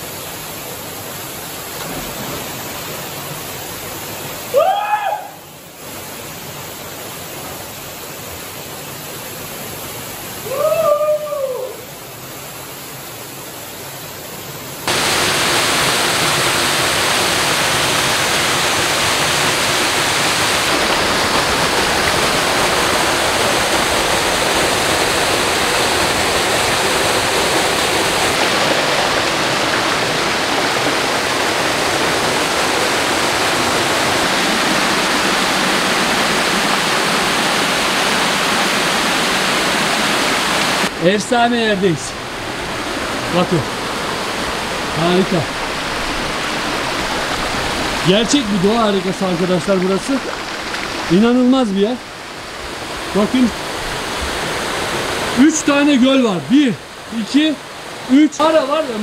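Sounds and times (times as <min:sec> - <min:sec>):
waterfall rushing: 0:00.0 - 0:59.0
short cry: 0:04.5 - 0:05.4, 0:10.4 - 0:11.9.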